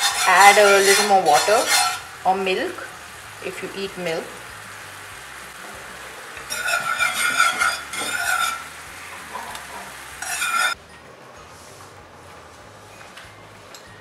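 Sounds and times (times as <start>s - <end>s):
whisk scraping a pan: 0.0s - 2.2s, 6.5s - 10.8s.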